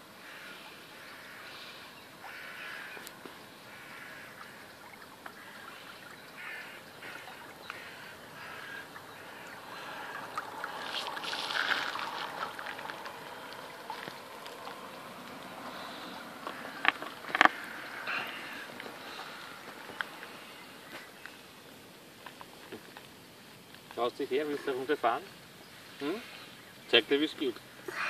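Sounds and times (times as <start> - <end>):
bird calls: 0.2 - 21.8.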